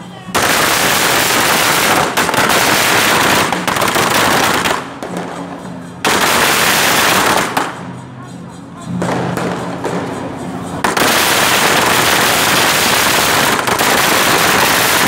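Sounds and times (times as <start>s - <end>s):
firecrackers banging in rapid volleys: 0.0s - 15.0s.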